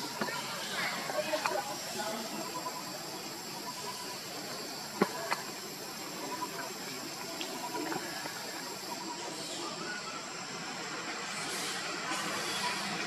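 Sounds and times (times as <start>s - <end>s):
high-pitched forest ambience hiss: 0.0s - 13.0s.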